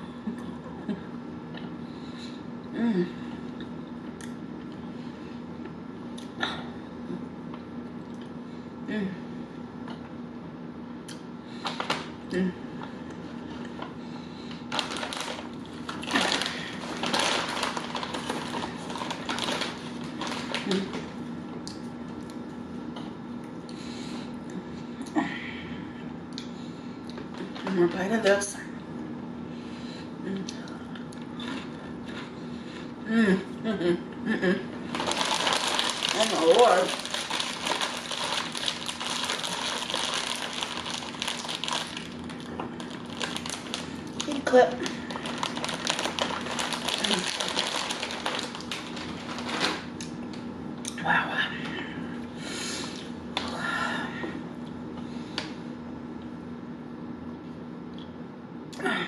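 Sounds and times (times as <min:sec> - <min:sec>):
plastic bag crinkling: 0:14.6 - 0:21.2, 0:34.9 - 0:50.0
crisp crunching bites: 0:34.9 - 0:50.1.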